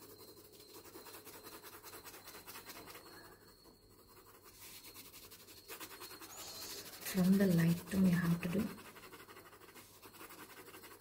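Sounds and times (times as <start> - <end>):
pencil scratching on paper: 0.0 - 11.0.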